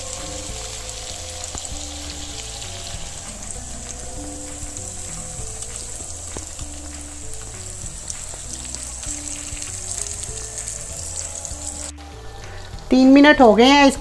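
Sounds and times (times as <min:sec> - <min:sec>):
fish sizzling in oil: 0:00.0 - 0:14.0.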